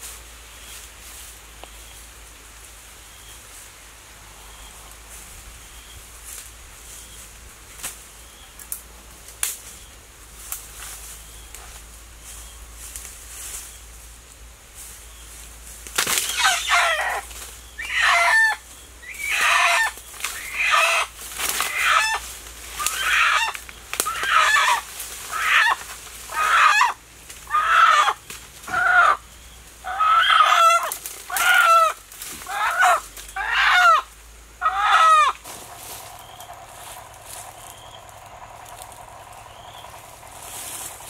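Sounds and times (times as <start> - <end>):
rooster squawking in distress: 16.3 - 17.2, 17.8 - 18.6, 19.2 - 22.2, 22.8 - 29.2, 29.8 - 36.6.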